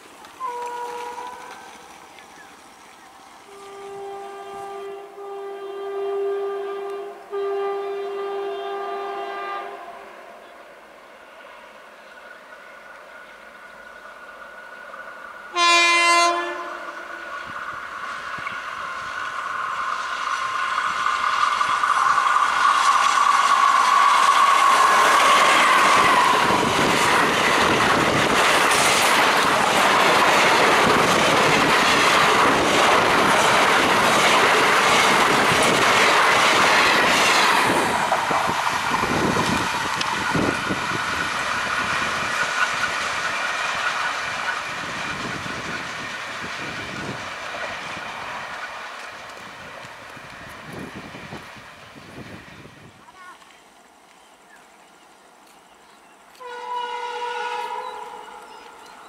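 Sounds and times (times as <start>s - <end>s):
train whine: 0.0s - 59.0s
locomotive horn blast: 0.4s - 1.9s, 3.5s - 10.4s, 15.5s - 17.3s, 56.3s - 58.8s
train wheels clattering over rails: 17.7s - 52.0s.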